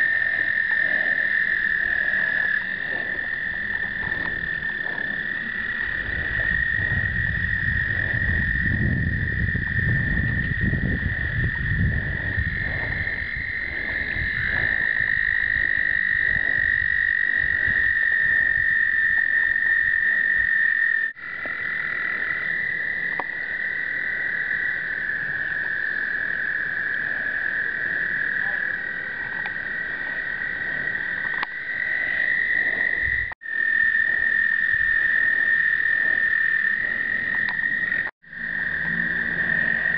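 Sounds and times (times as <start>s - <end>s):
toads trilling: 0.0s - 39.9s
low rumble: 1.9s - 16.8s.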